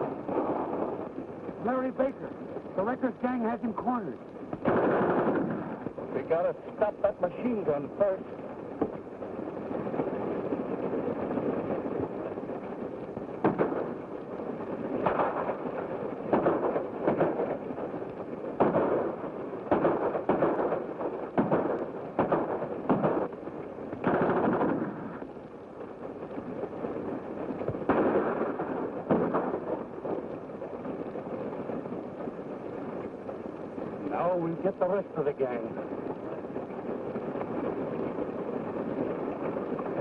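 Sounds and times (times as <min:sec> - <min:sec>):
film soundtrack hiss: 0:00.0 - 0:40.0
gunshots: 0:03.7 - 0:08.2, 0:13.2 - 0:14.1, 0:15.0 - 0:17.9, 0:18.5 - 0:23.4, 0:24.0 - 0:25.3, 0:27.5 - 0:30.3.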